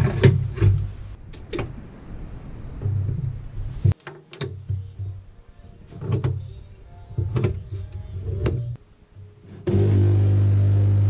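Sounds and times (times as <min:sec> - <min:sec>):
background music: 0:04.6 - 0:10.2.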